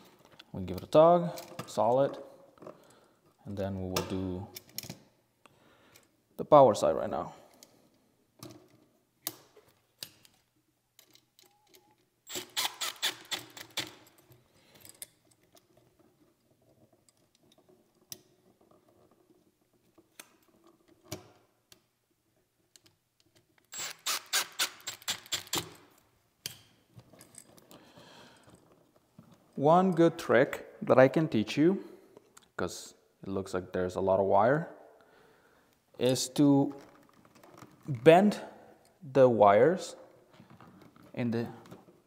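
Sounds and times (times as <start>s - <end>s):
drill rapid clicking: 12.3s - 13.5s, 23.7s - 25.7s.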